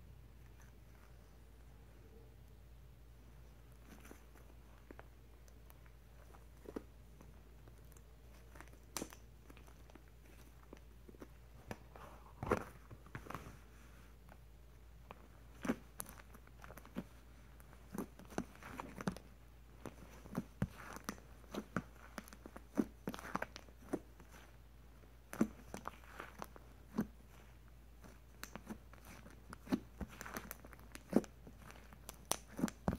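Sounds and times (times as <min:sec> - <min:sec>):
slime popping and crackling: 0:07.9 - 0:10.8, 0:25.2 - 0:32.9.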